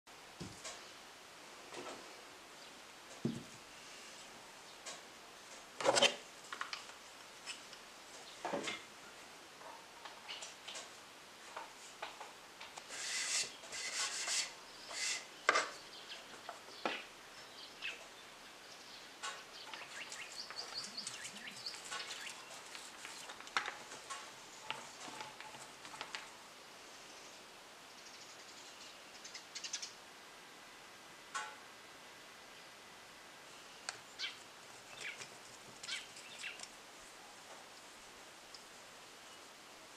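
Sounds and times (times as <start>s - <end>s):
light taps and knocks: 3.2s - 3.6s.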